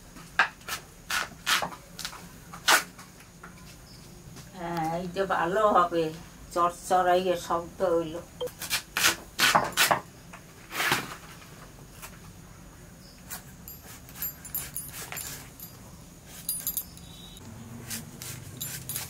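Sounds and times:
knife slicing vegetable: 0:17.8 - 0:19.0.

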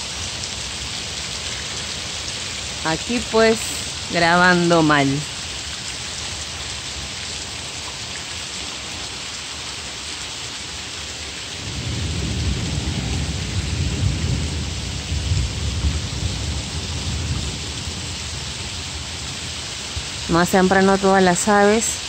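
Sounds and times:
steady rain: 0:00.0 - 0:22.0
thunder rumbling: 0:11.6 - 0:20.8.

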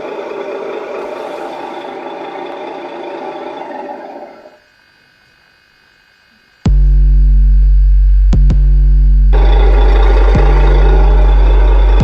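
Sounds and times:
truck engine idling: 0:00.0 - 0:04.5, 0:09.3 - 0:12.0.

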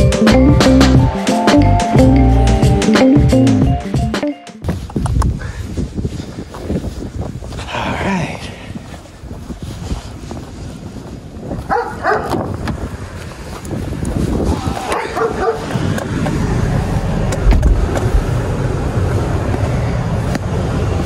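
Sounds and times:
car door thump: 0:17.3 - 0:18.2.

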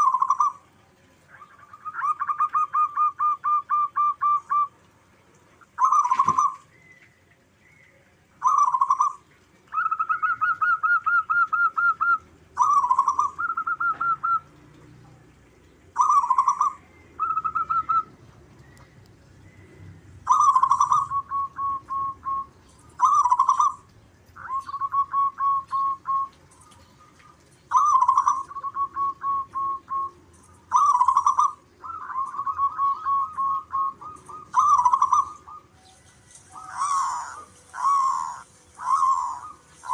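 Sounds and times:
dove cooing: 0:00.0 - 0:06.9, 0:08.4 - 0:14.9, 0:15.7 - 0:18.4, 0:20.2 - 0:39.9.

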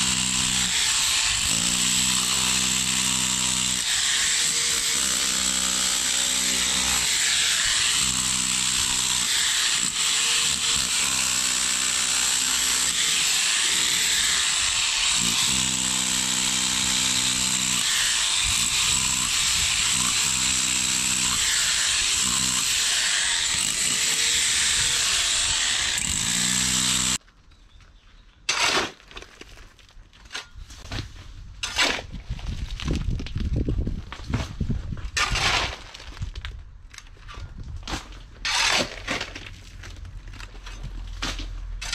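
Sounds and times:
power tool grinding concrete: 0:00.0 - 0:27.2
concrete rubble crunch: 0:00.0 - 0:41.9.

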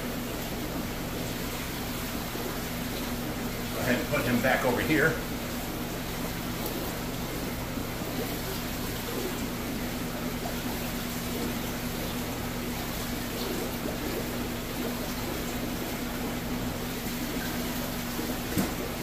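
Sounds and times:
electrical hum of tank pumps: 0:00.0 - 0:19.0
water trickling from aquarium filters: 0:00.0 - 0:19.0.

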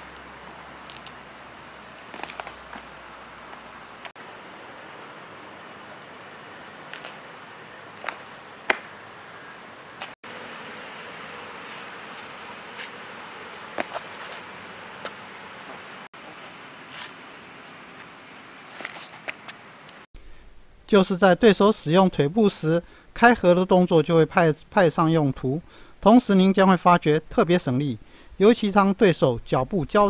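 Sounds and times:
sneakers scuffing on pavement: 0:00.0 - 0:04.2, 0:06.7 - 0:10.2, 0:11.6 - 0:19.7
insect trill: 0:00.0 - 0:20.1.

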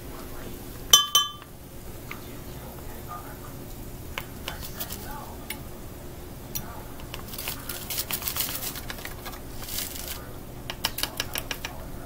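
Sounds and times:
seasoning pattering: 0:00.0 - 0:12.0
metal utensil tapping glass: 0:01.0 - 0:01.5
foil packet crinkling: 0:04.4 - 0:05.3, 0:07.0 - 0:11.7.

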